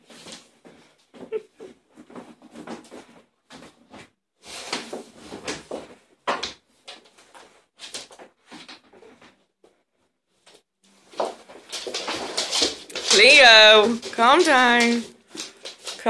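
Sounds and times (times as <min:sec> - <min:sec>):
dogs play-wrestling on wooden floor: 0:00.0 - 0:09.4, 0:10.4 - 0:16.0.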